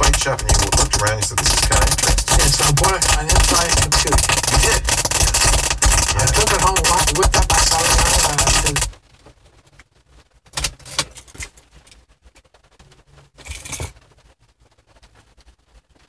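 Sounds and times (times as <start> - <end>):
static burst: 0.0 - 9.2
clicks and pops: 0.0 - 10.7
podcast through car stereo: 0.0 - 11.2.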